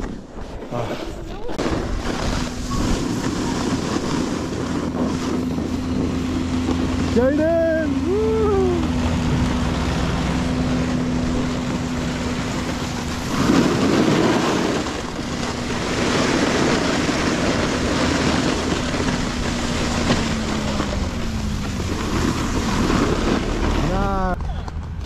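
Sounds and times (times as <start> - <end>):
rush of noise: 0.0 - 25.0
snowmobile engine running: 0.0 - 25.0
wind noise on microphone: 0.0 - 25.0.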